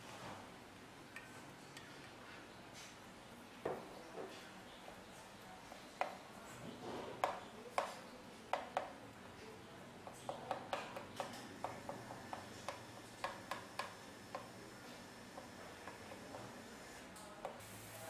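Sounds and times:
cream boiling in a pan: 4.6s - 18.0s.

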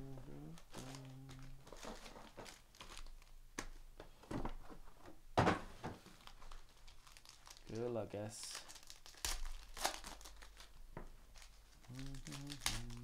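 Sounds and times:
foil packs crinkling: 0.5s - 3.4s, 6.1s - 13.0s.

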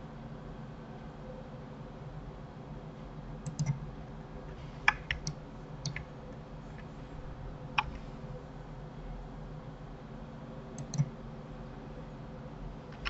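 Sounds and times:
keyboard and mouse clicks: 3.4s - 3.8s, 4.8s - 6.1s, 7.7s - 8.0s, 10.8s - 11.1s
low hum: 3.5s - 10.0s.

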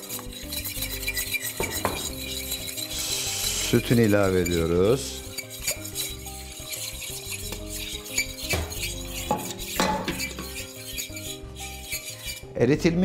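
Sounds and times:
fork clinking against metal pot: 0.0s - 12.5s
soft background music: 0.0s - 13.0s.

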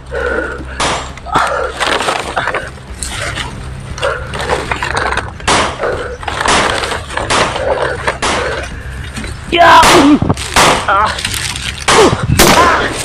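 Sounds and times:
leaves and grass rustling: 6.2s - 11.9s.

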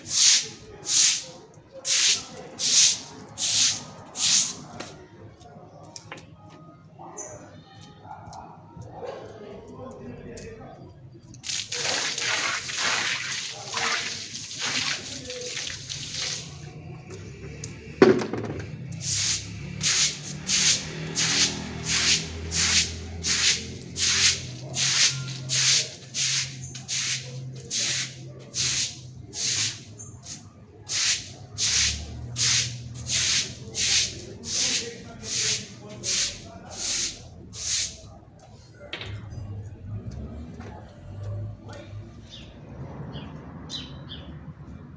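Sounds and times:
broom scrubbing wet floor: 0.0s - 4.7s, 11.5s - 16.7s, 18.9s - 38.1s.

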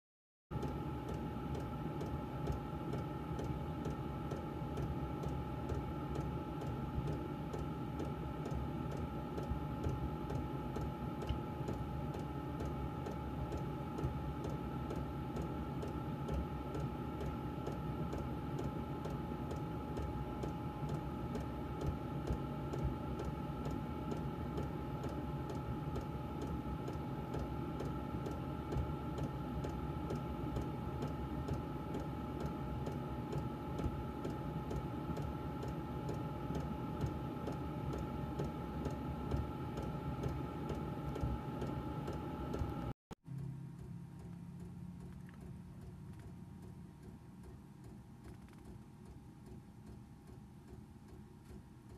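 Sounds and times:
blower fan whirring: 0.6s - 51.9s
two-tone hum: 0.6s - 51.9s.

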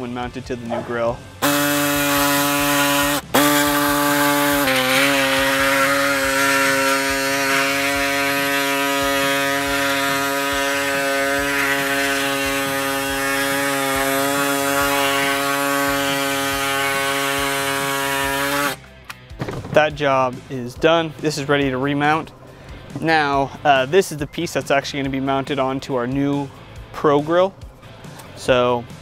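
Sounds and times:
air saw buzzing: 1.4s - 18.8s.

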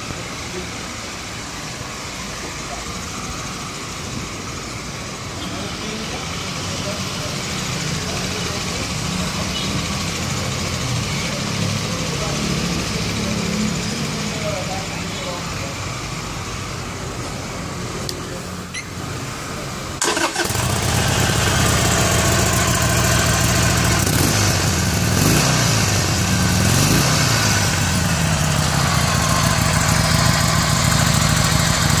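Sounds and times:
motorcycle engine starting and idling: 5.3s - 15.4s, 20.0s - 32.0s
motorcycle revving: 5.4s - 17.7s, 20.0s - 32.0s.

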